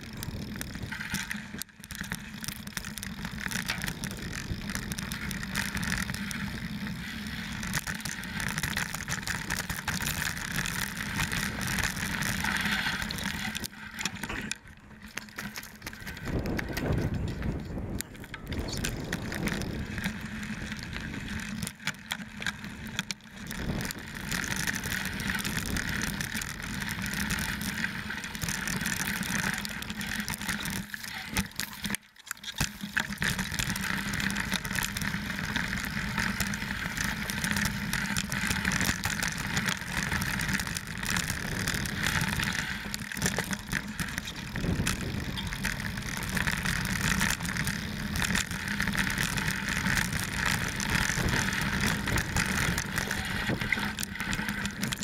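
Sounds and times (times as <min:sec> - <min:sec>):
bike rattling and knocking: 0:00.0 - 0:55.0
tyres crunching on stones: 0:08.8 - 0:21.7.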